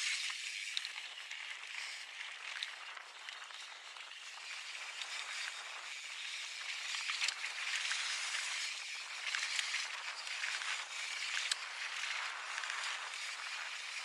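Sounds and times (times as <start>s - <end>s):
bike tyres rolling on dirt trail: 0.0s - 14.0s.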